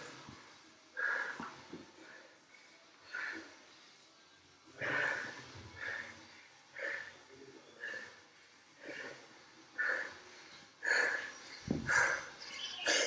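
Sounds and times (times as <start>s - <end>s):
man breathing hard: 1.0s - 3.8s, 4.8s - 12.4s.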